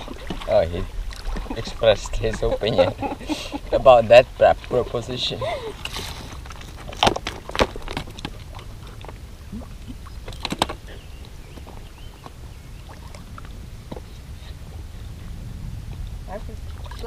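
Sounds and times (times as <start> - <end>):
wind rumble on microphone: 0.0 - 17.0
footsteps on loose rock: 6.0 - 8.4.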